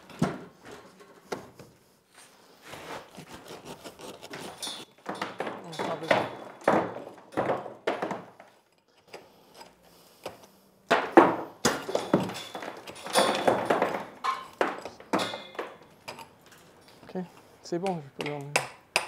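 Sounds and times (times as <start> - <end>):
stone blocks knocking and scraping: 4.3 - 8.9.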